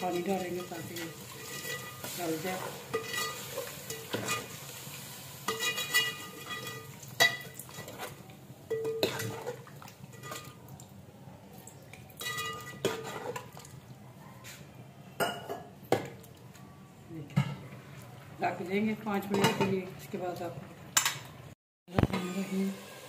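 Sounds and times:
metal ladle scraping a pot: 0:00.0 - 0:04.8, 0:05.4 - 0:10.6, 0:12.2 - 0:13.6.

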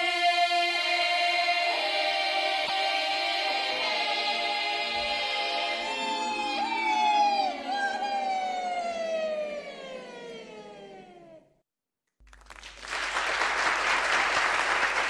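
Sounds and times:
women's choir singing: 0:00.0 - 0:08.0
applause: 0:12.2 - 0:15.0.

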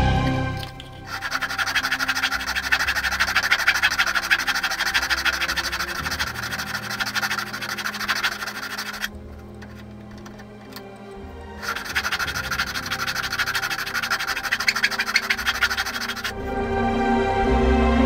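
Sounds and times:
file rasping on wood: 0:01.1 - 0:10.8, 0:11.6 - 0:16.3.

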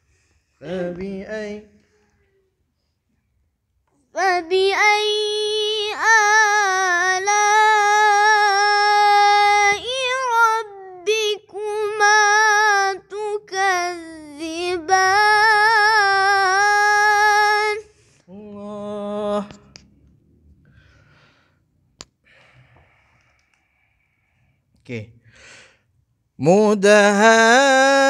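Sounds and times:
person reciting melodically: 0:00.6 - 0:02.0, 0:04.2 - 0:19.8, 0:26.4 - 0:28.0.

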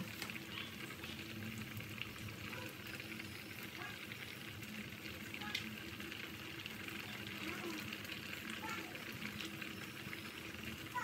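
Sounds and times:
soup boiling and bubbling: 0:00.0 - 0:11.0.

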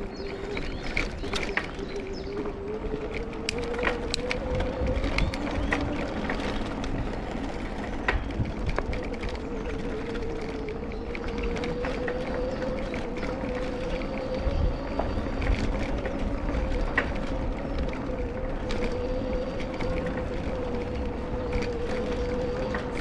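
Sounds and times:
bike frame rattling: 0:00.0 - 0:23.0
electric bike motor whine: 0:00.0 - 0:23.0
tyres rumbling on cobblestones: 0:00.0 - 0:23.0.

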